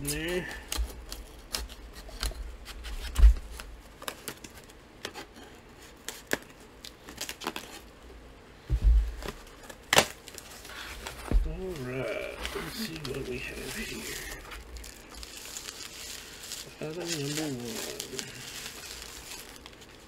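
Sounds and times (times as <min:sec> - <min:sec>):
tape and cardboard tearing: 0:09.2 - 0:14.0.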